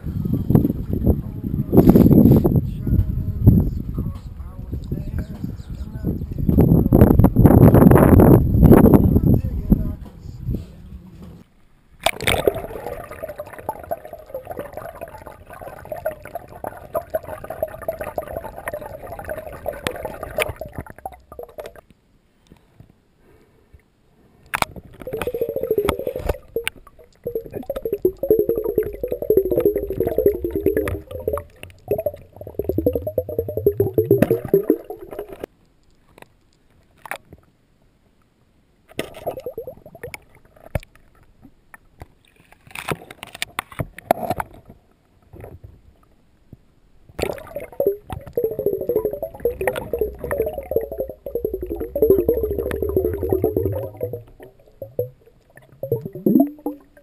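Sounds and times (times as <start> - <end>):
churning underwater noise: 12.0 - 21.8, 24.7 - 35.5, 47.2 - 57.0.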